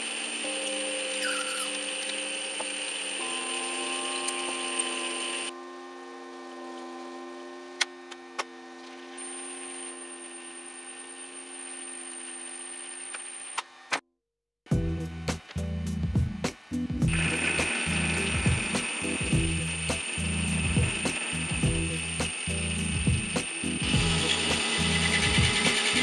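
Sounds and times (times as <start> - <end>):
drill bit cutting aluminium: 0.0 - 5.5, 17.1 - 26.0
metal lathe whining: 0.0 - 7.0, 8.3 - 13.5, 17.1 - 26.0.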